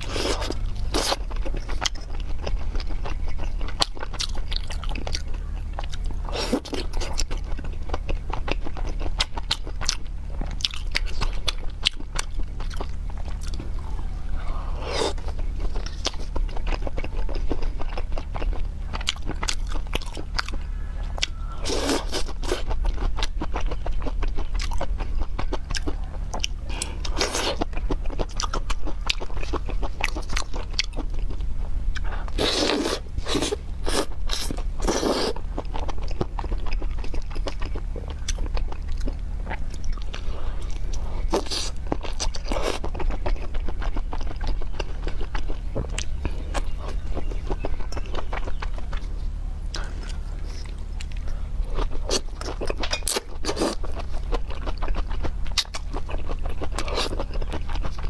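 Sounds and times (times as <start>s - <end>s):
low hum: 0.0s - 58.0s
person chewing crunchy food: 0.0s - 58.0s.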